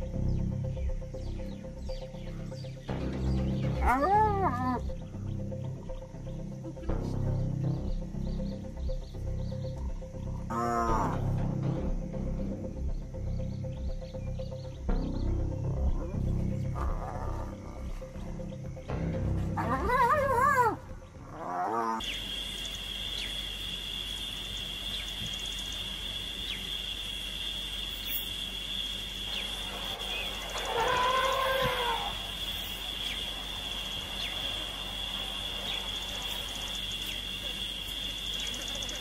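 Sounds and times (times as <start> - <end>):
high-pitched insect drone: 0.0 - 39.0
hyenas squealing: 3.7 - 4.9, 16.7 - 18.0, 19.6 - 22.1, 30.1 - 32.4
drawn-out animal call: 29.5 - 32.9.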